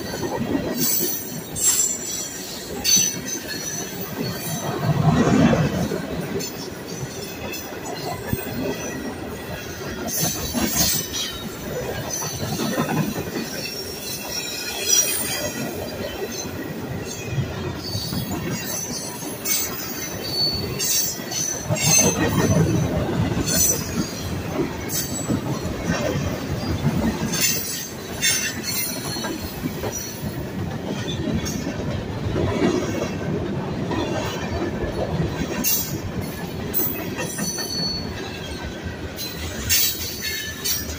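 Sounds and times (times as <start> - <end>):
train wheels rumbling on rails: 0.0 - 40.9
high wheel squeals: 17.7 - 22.3, 36.9 - 38.6.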